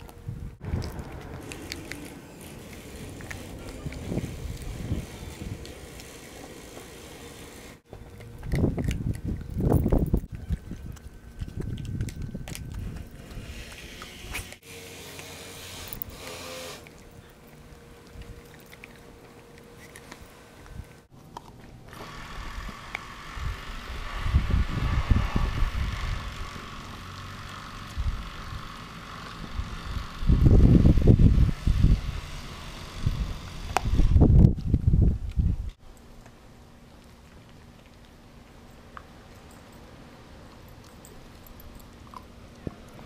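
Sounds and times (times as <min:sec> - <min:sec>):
dog chewing raw meat: 0:00.7 - 0:06.2, 0:08.0 - 0:14.1, 0:16.8 - 0:21.8, 0:40.4 - 0:43.0.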